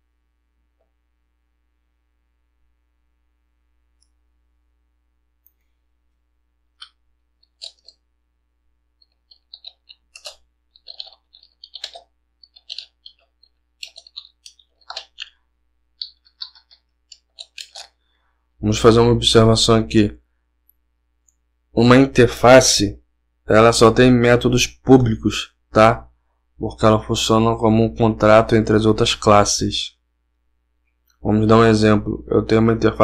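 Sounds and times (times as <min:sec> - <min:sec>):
keyboard typing: 0:06.8 - 0:08.1, 0:09.0 - 0:18.0.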